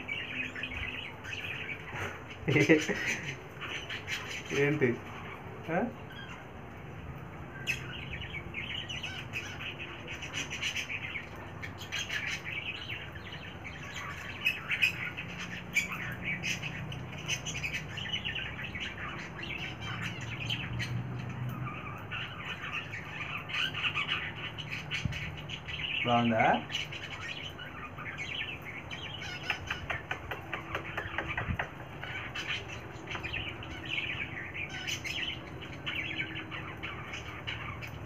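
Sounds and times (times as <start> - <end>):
cockatiel chirping and squawking: 29.2 - 38.0.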